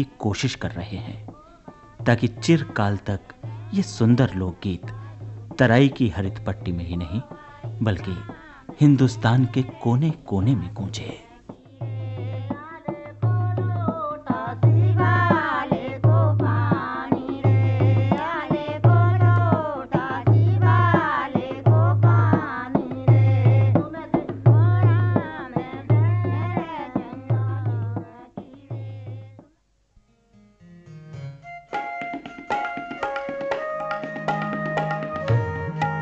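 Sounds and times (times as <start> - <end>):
deep drum beat: 1.2 - 4.2, 10.5 - 28.0
bending melody line: 30.3 - 36.0.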